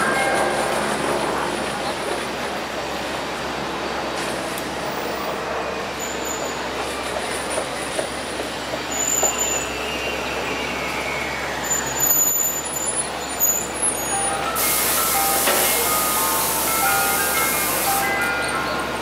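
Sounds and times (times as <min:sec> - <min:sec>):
high squeal falling in pitch: 0:08.9 - 0:18.6.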